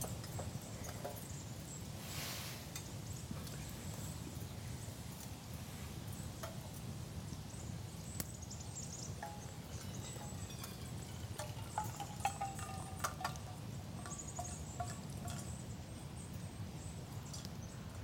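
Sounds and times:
low wind rumble: 0.0s - 18.0s
metallic clinks of cookware: 9.2s - 15.5s.

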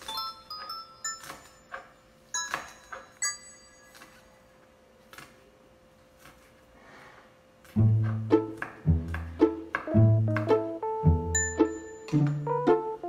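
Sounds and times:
knife chopping on wooden board: 7.8s - 10.6s
bell-like music notes: 10.0s - 13.0s.

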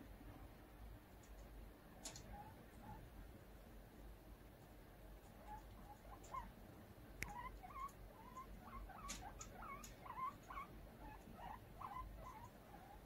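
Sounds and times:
guinea pig squeaking: 2.0s - 3.1s, 5.1s - 6.6s, 7.2s - 13.0s.

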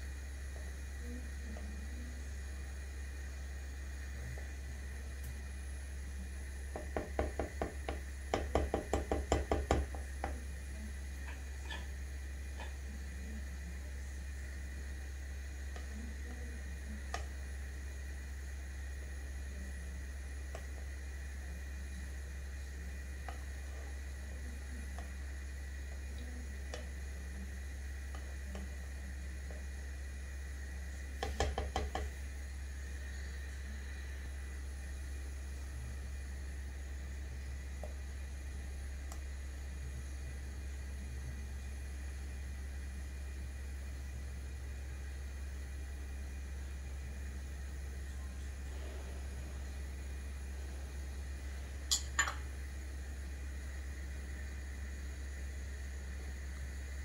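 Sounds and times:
steady low hum: 0.0s - 57.0s
spatula tapping cooking pot: 6.7s - 10.4s, 12.6s - 12.8s, 31.2s - 32.2s.

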